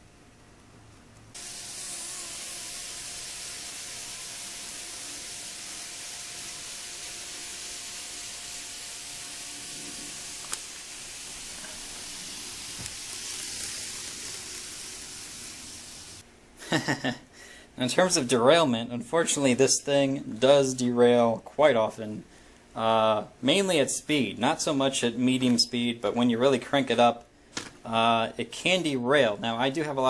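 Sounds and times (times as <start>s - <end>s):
faint steady whine: 0.0s - 30.0s
model train whirring: 1.4s - 16.2s.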